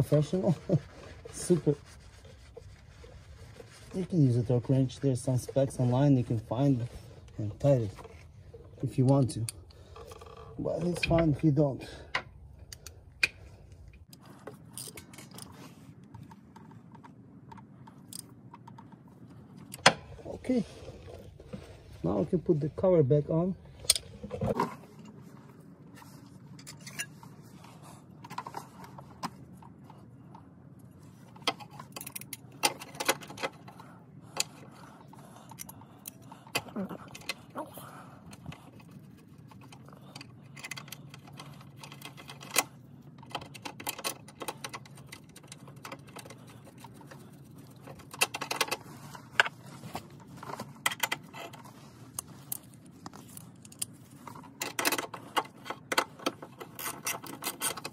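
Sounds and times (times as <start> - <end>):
bolts and tools clicking and knocking: 12.1 - 20.1, 28.2 - 37.5, 38.3 - 57.9.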